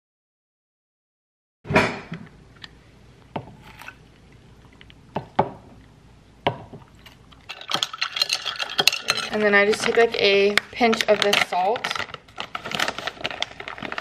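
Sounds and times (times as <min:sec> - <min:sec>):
straw clinking ice in glass: 0:07.0 - 0:09.9.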